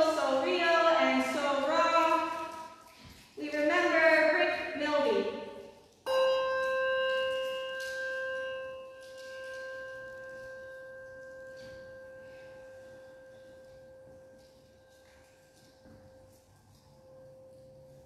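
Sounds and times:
hand bell ringing: 0:06.1 - 0:18.0.

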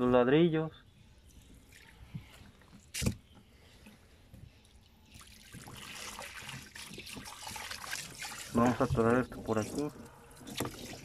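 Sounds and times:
hose water splashing into tub: 0:05.1 - 0:11.0.

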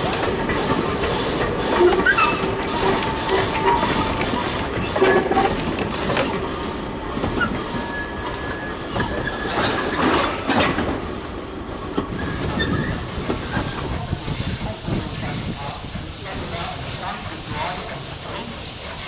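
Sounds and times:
wagon wheels clattering on rails: 0:00.0 - 0:06.4, 0:08.4 - 0:11.2.

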